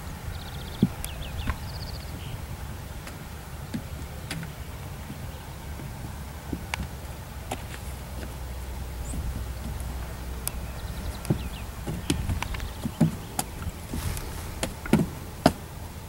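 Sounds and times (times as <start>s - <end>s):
bird chirps: 0.0s - 2.4s, 9.0s - 15.0s
low rumble: 0.0s - 16.0s
hooves knocking on wood: 2.9s - 15.7s.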